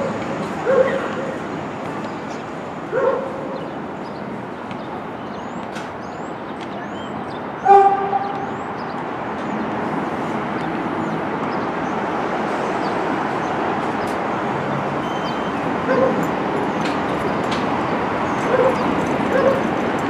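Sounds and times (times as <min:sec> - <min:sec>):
train rumbling over tracks: 0:00.0 - 0:20.0
dog barking: 0:00.6 - 0:01.4, 0:02.9 - 0:03.6, 0:15.9 - 0:16.3, 0:18.4 - 0:19.7.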